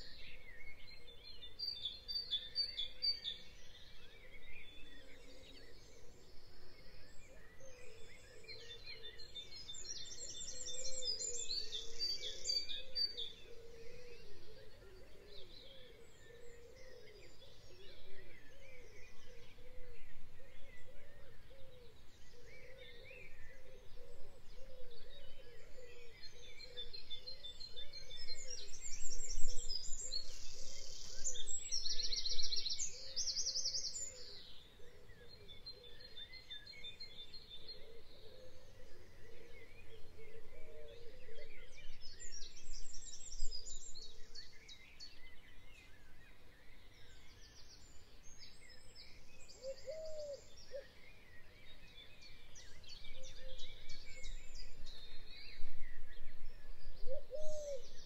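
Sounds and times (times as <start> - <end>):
birds chirping and trilling: 0.0 - 58.0
outdoor background noise: 0.0 - 58.0.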